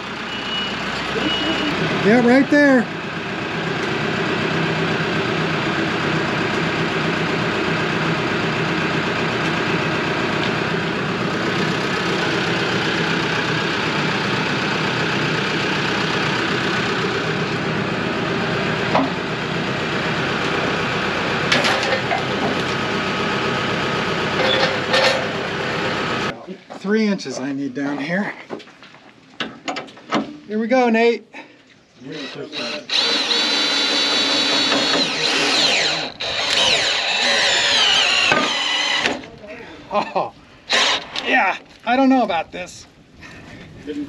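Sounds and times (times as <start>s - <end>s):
diesel tractor engine running: 0.0s - 26.4s.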